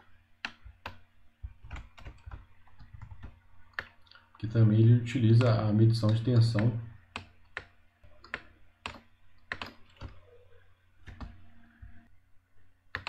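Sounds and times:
faint steady hum: 0:00.0 - 0:13.0
keyboard and mouse clicks: 0:00.4 - 0:04.4, 0:05.4 - 0:10.2, 0:11.0 - 0:12.0.

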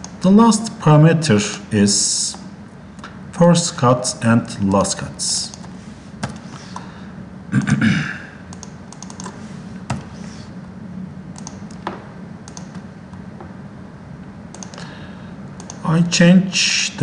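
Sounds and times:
keyboard and mouse clicking: 0:08.5 - 0:10.1, 0:11.3 - 0:12.8, 0:14.5 - 0:14.8, 0:15.6 - 0:15.8.

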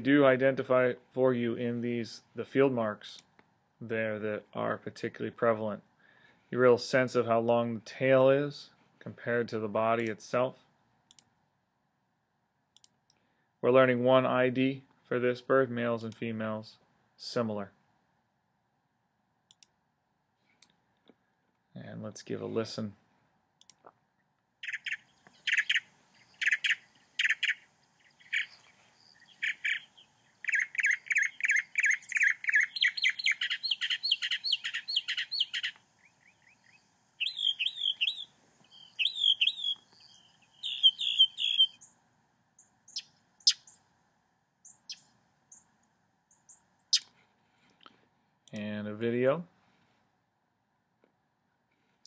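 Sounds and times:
mockingbird singing: 0:24.6 - 0:41.9, 0:42.6 - 0:43.8, 0:44.6 - 0:45.6, 0:46.3 - 0:47.1.

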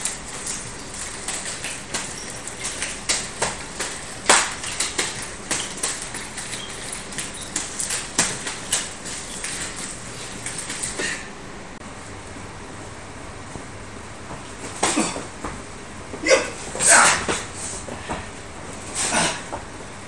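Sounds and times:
nunchaku clacking: 0:00.0 - 0:11.2.

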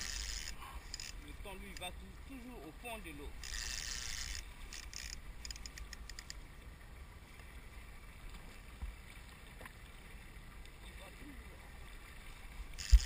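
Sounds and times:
water lapping around boat: 0:00.0 - 0:13.0.

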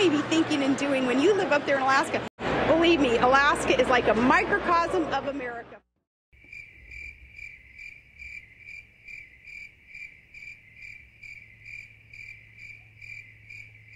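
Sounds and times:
cricket chirping: 0:06.4 - 0:13.9.

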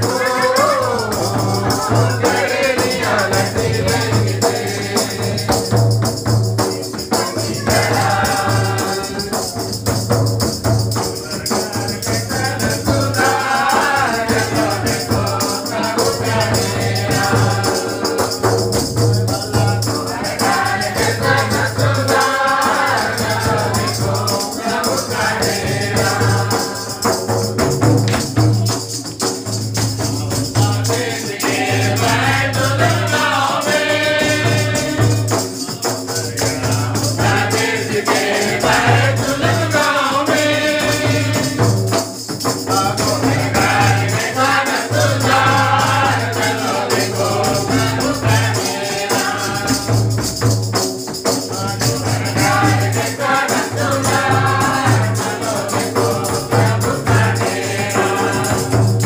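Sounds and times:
group singing a carol: 0:00.0 - 0:59.0
hand drum beating: 0:00.0 - 0:59.0
hand clapping: 0:27.9 - 0:29.9.

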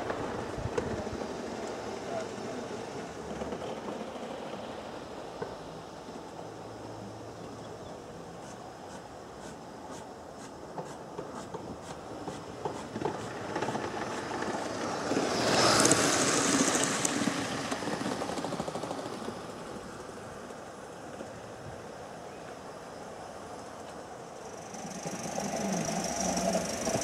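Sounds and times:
wheels rumbling on rail: 0:00.0 - 0:22.4, 0:23.6 - 0:27.0
steam hiss: 0:08.2 - 0:27.0.

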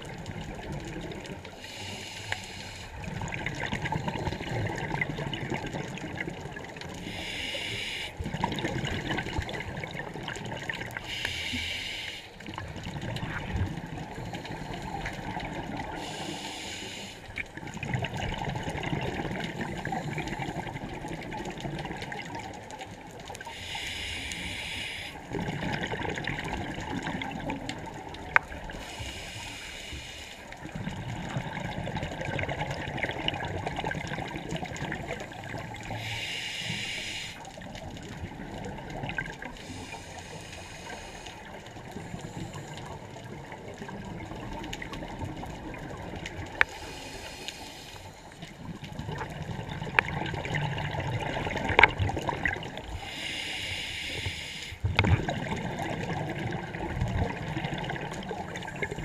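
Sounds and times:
regulator inhale hiss: 0:01.5 - 0:03.2, 0:07.0 - 0:08.3, 0:11.0 - 0:12.6, 0:15.8 - 0:17.4, 0:23.4 - 0:25.3, 0:28.7 - 0:30.7, 0:35.4 - 0:37.5, 0:39.6 - 0:43.0, 0:46.6 - 0:48.5, 0:52.9 - 0:54.9
exhale bubbling: 0:23.4 - 0:59.0.

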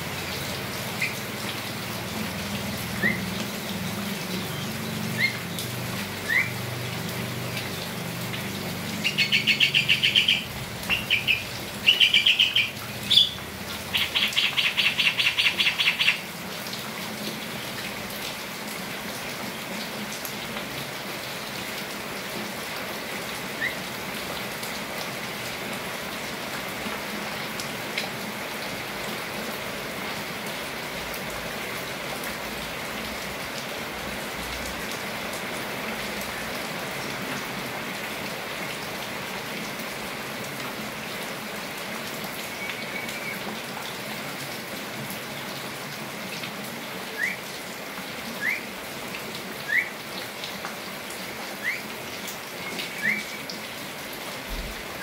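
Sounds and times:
rain falling: 0:00.0 - 0:55.0
birds calling harshly: 0:09.0 - 0:16.2.

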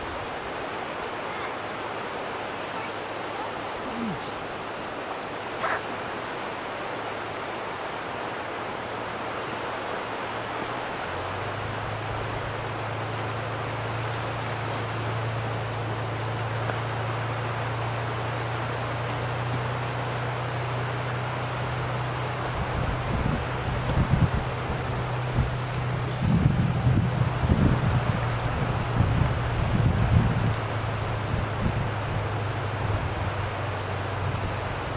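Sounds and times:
birds chirping: 0:00.0 - 0:34.9
wind in trees: 0:00.0 - 0:34.9
distant locomotive engine hum: 0:08.1 - 0:34.9.

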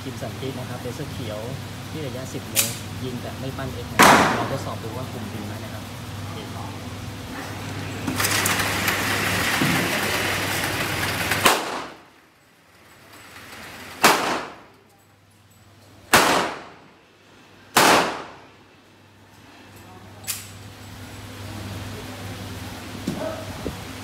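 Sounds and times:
steady loud noise: 0:00.0 - 0:14.8, 0:16.0 - 0:19.6
pistol gunshots: 0:04.0 - 0:04.5, 0:11.4 - 0:12.0, 0:14.0 - 0:14.7, 0:16.1 - 0:16.9, 0:17.7 - 0:18.5.

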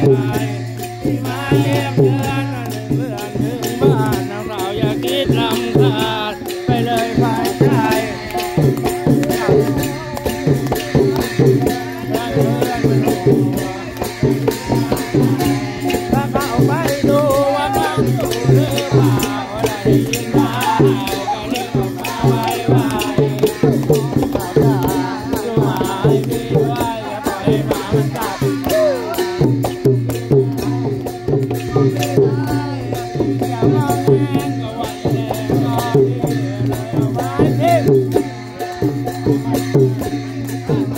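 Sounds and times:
hand-beaten long drums: 0:00.0 - 0:40.9
rattling percussion: 0:00.0 - 0:40.9
voices singing: 0:00.0 - 0:40.9.

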